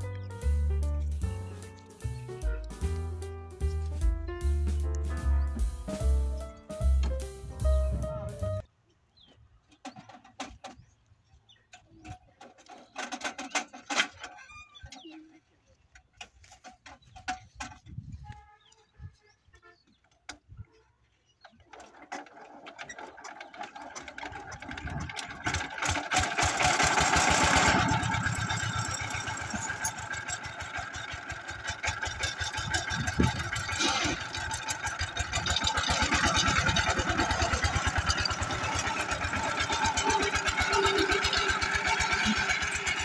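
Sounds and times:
diesel engine starting and running: 0.0s - 8.7s, 21.6s - 43.0s.

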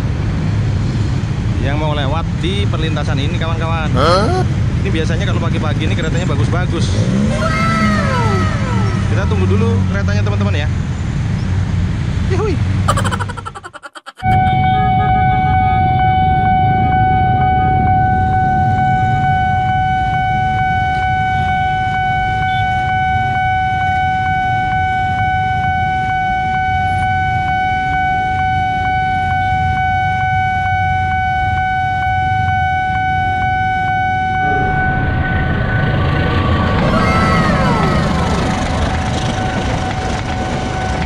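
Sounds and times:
idling motorcycles and cars: 0.0s - 12.9s, 35.6s - 41.0s
level-crossing alarm tone: 13.0s - 21.0s, 21.7s - 41.0s
train rumble: 34.2s - 41.0s.

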